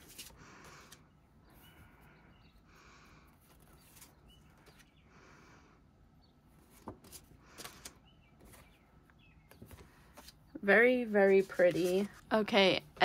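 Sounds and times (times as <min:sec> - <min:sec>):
paper rustling: 0:00.0 - 0:01.0, 0:03.4 - 0:04.9, 0:06.6 - 0:08.8, 0:09.5 - 0:12.5.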